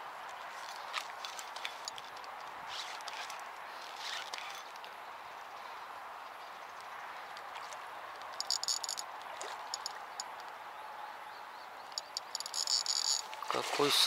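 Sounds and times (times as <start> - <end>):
fishing reel clicking: 8.4 - 9.1, 9.7 - 10.5, 11.9 - 13.3.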